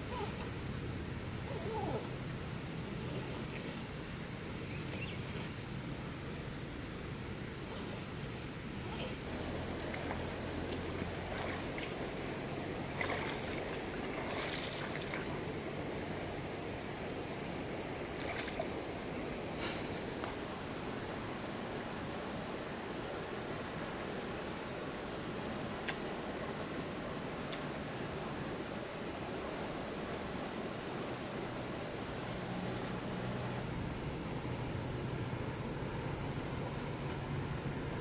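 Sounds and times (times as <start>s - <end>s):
high insect buzz: 0.0s - 38.0s
river flowing over stones: 9.1s - 19.6s.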